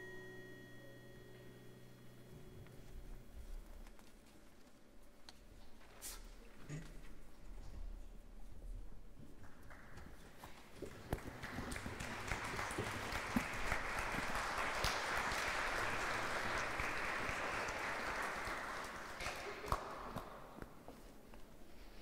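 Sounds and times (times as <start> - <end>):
audience applauding: 10.8 - 20.4
loud single claps: 11.2 - 20.5.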